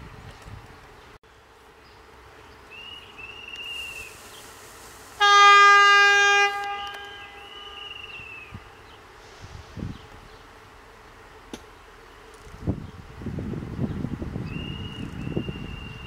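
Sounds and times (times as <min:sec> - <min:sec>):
high arching calls: 0:01.9 - 0:09.4
locomotive horn blast: 0:05.1 - 0:08.4.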